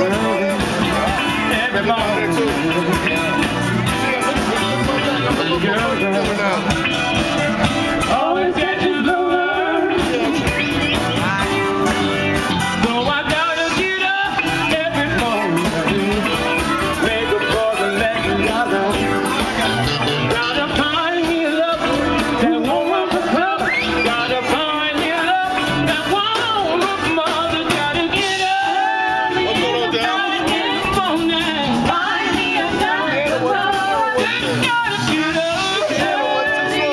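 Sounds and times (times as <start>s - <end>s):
live band playing: 0.0s - 36.9s
person singing: 7.9s - 11.7s, 12.8s - 36.9s.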